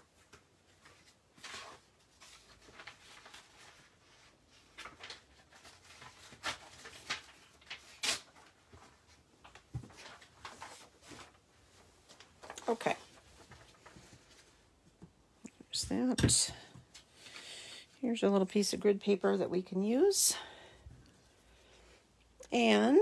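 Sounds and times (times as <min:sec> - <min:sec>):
paper rustling: 0:00.2 - 0:14.8.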